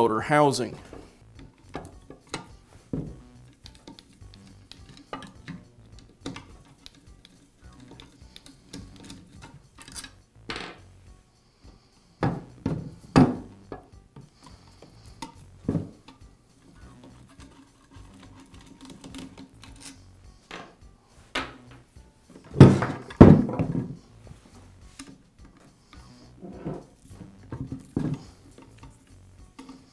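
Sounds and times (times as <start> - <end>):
parts knocking on wooden bench: 1.7 - 4.1, 12.2 - 14.3, 15.6 - 16.2, 20.5 - 20.8, 21.4 - 21.8, 22.4 - 24.0, 27.5 - 28.2
metal clicks and scrapes: 3.4 - 10.2, 14.3 - 20.0, 24.9 - 29.9.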